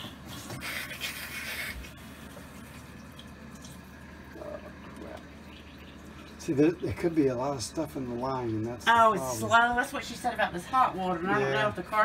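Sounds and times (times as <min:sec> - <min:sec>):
faucet water rushing: 0:00.0 - 0:09.2.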